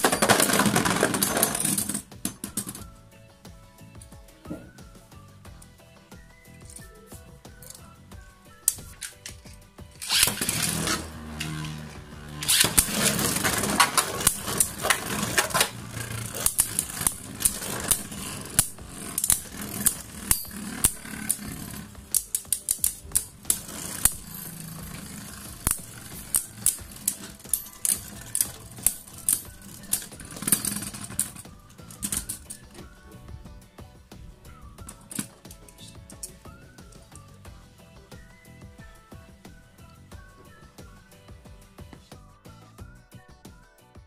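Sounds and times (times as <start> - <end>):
spinning tops clacking: 0.0 - 2.8, 8.6 - 33.1
spinning tops launched with rasp: 0.0 - 2.8, 8.7 - 33.0.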